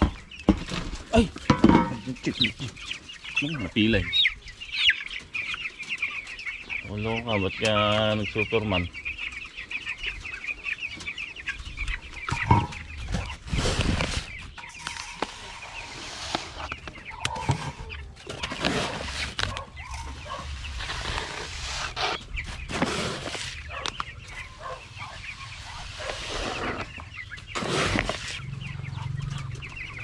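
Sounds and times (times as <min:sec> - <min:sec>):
chickens clucking: 0:00.0 - 0:30.0
rustling: 0:12.3 - 0:28.5.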